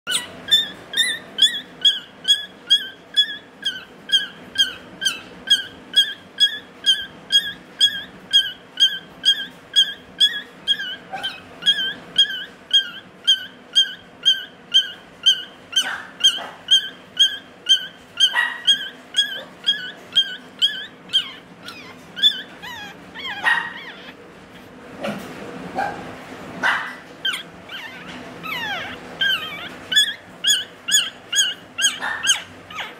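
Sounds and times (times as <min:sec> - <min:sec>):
puppy squeaky cries: 0:00.0 - 0:24.7, 0:26.6 - 0:32.9.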